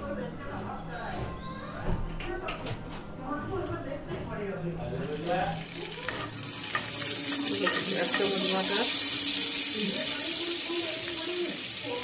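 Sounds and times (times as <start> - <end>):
butter sizzling in hot oil: 5.0 - 12.0
spatula stirring in pan: 5.7 - 12.0.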